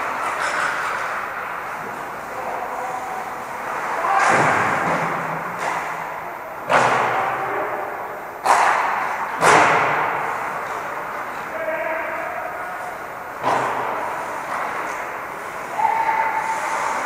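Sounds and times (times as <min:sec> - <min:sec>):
echoing hockey knocks: 0:03.8 - 0:15.2.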